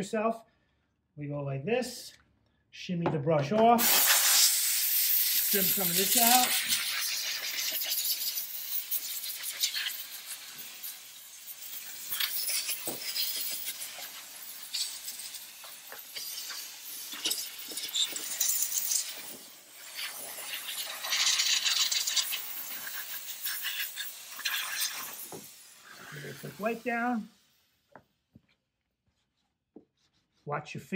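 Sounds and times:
steam hissing from nozzle: 3.8 - 27.8.

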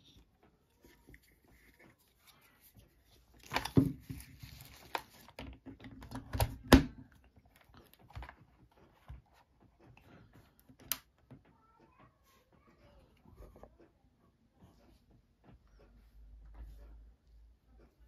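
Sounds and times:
cable rustling: 0.0 - 11.5.

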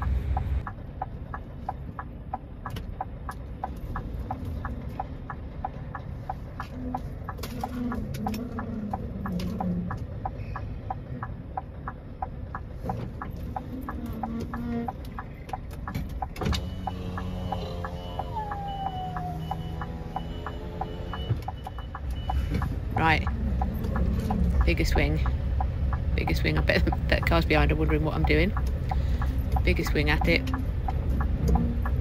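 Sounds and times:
diesel engine rumble: 0.0 - 32.0
lorry reversing beeps: 16.6 - 22.5.

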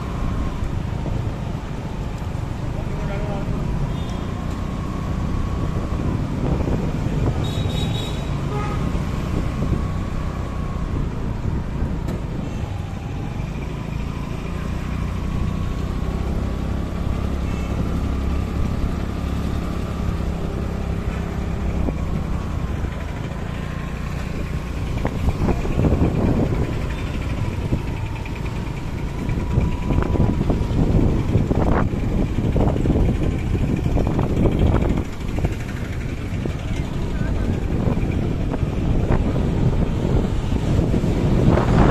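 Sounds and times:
street traffic: 0.0 - 41.9
vehicle engine running: 13.8 - 41.9.

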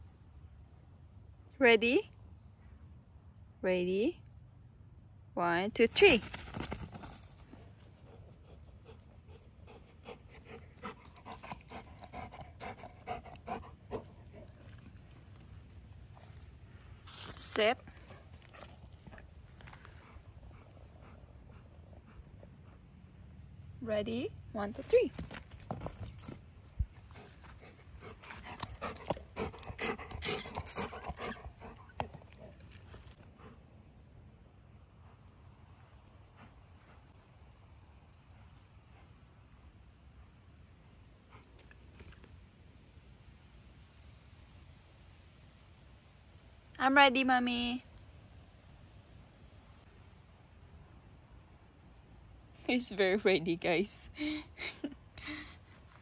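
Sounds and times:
puppy panting: 8.0 - 15.0, 19.9 - 23.1, 27.1 - 33.7.

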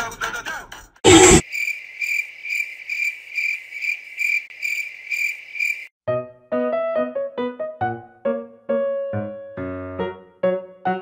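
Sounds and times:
cricket chirping: 1.4 - 5.9
piano music: 6.1 - 11.0.

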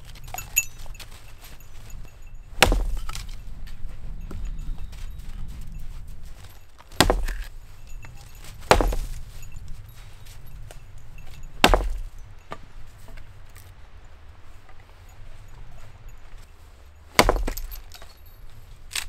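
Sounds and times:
hatchet chopping firewood: 2.5 - 3.4, 6.8 - 7.6, 8.6 - 9.3, 11.5 - 12.2, 17.1 - 18.2.

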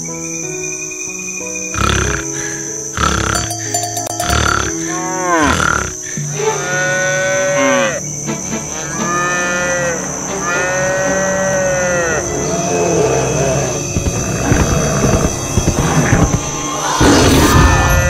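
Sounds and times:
farm animal calling: 1.8 - 8.0.

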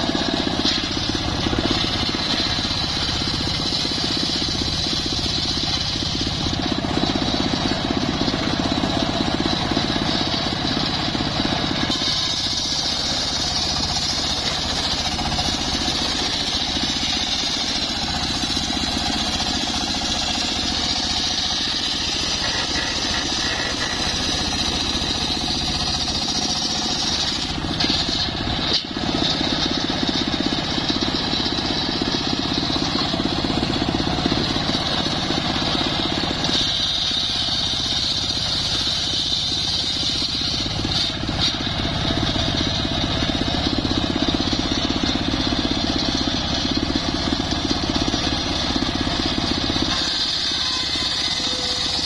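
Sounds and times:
low drone of saw drive: 0.0 - 30.5
circular saw blade whining: 0.0 - 30.9, 31.6 - 52.0.

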